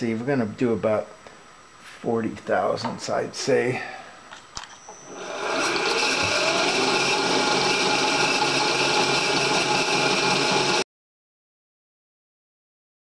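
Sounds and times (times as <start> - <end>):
milling machine cutting metal: 4.9 - 10.8.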